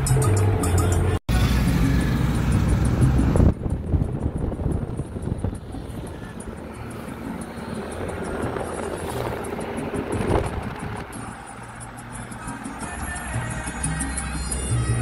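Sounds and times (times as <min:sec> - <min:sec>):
car engine and tyre rumble: 0:00.0 - 0:15.0
wind noise: 0:02.6 - 0:11.2.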